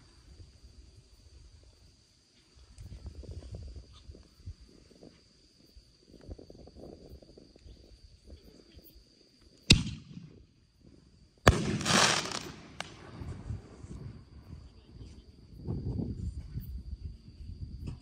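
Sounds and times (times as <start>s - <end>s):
insect trill: 0.0s - 18.0s
firework crackling: 11.5s - 13.9s
firework bangs: 11.5s - 14.0s.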